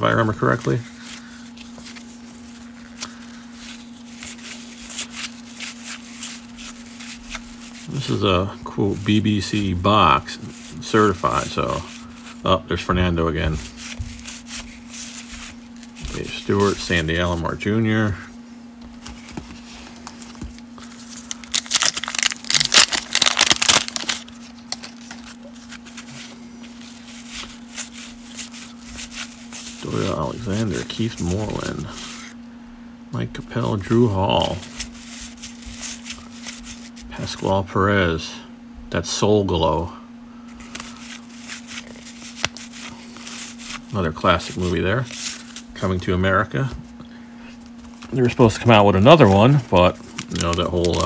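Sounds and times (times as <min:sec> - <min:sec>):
wax paper wrapper tearing: 0:00.0 - 0:09.7, 0:20.1 - 0:32.4, 0:34.3 - 0:37.1, 0:40.6 - 0:45.8, 0:47.8 - 0:51.0
cards flicking and rustling: 0:00.2 - 0:08.3, 0:13.5 - 0:17.4, 0:18.8 - 0:32.3, 0:34.4 - 0:37.1, 0:40.5 - 0:45.7, 0:47.6 - 0:51.0.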